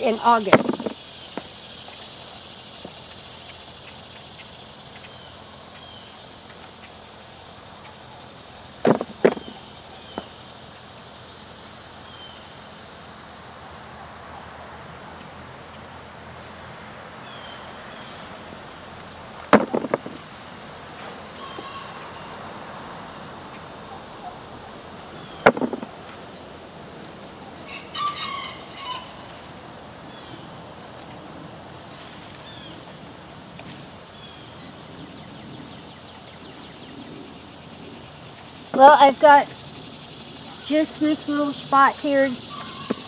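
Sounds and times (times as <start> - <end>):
insects buzzing: 0.0 - 43.0
knocks: 0.5 - 1.5, 8.8 - 9.6, 19.5 - 20.2, 25.4 - 26.0.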